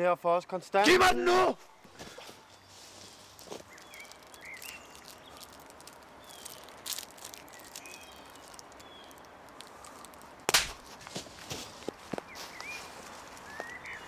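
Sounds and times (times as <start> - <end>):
birds chirping: 0.3 - 10.5, 11.9 - 14.0
hard slap to the face: 10.5 - 10.8.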